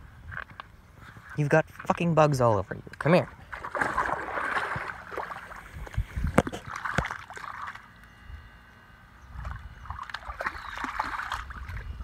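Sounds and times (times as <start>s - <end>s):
water splashing under wading feet: 3.0s - 7.9s, 9.4s - 11.9s.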